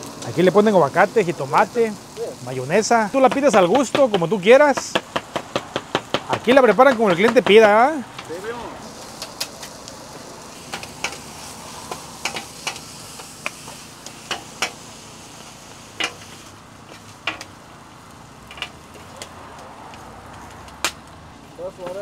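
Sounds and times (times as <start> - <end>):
food sizzling on griddle: 0.0 - 22.0.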